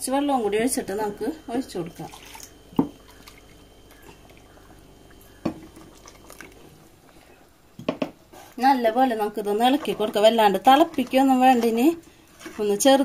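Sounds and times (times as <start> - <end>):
liquid pouring into pot: 1.9 - 3.5.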